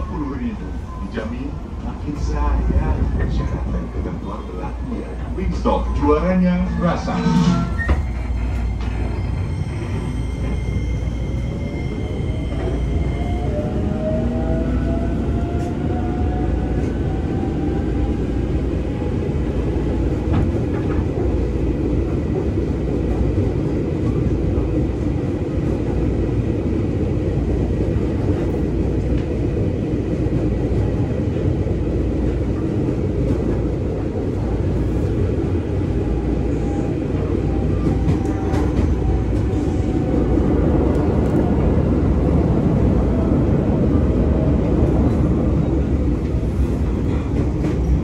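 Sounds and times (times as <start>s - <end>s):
train carriage rumble: 0.0s - 48.0s.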